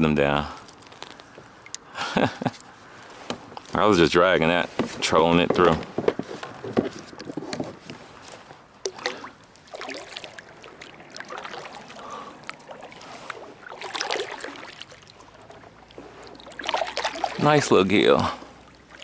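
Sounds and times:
kayak paddle strokes in water: 4.4s - 19.0s
water splashing and dripping: 6.9s - 19.0s.

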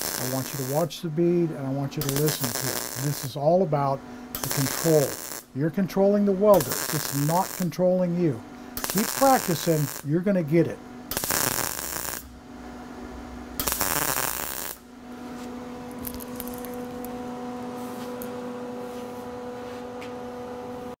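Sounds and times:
welder arc crackling: 0.0s - 12.4s, 13.6s - 14.9s, 15.8s - 17.2s
steady hum: 0.0s - 21.0s.

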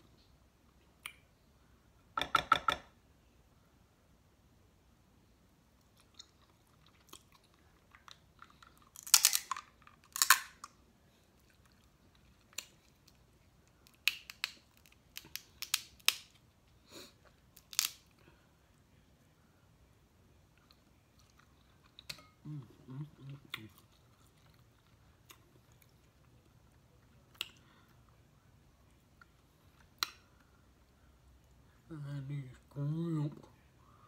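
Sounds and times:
chewing: 5.8s - 10.3s, 11.2s - 13.5s, 20.5s - 27.7s
crab shells cracking: 7.9s - 10.7s, 13.8s - 16.4s, 17.6s - 18.1s.

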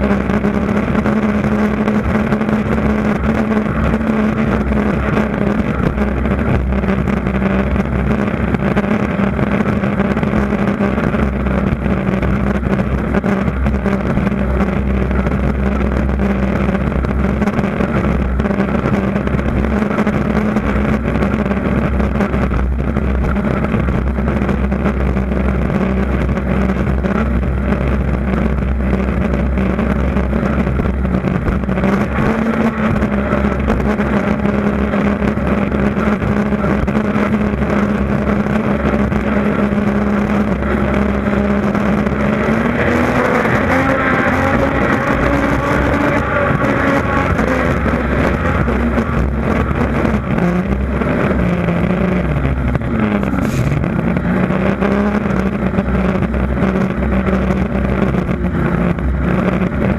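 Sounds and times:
boat engine running hard: 0.0s - 59.9s.

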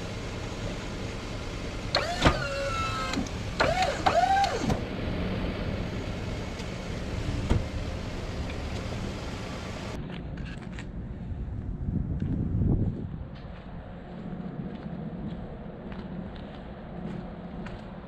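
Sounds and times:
truck engine idling: 0.0s - 10.0s
hydraulic pump motor whining: 1.8s - 4.9s.

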